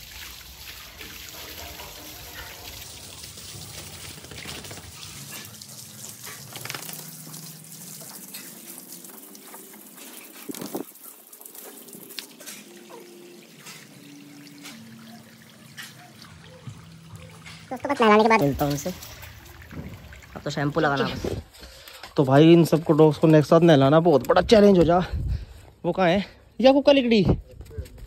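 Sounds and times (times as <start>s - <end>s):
hose water splashing: 0.0s - 24.6s.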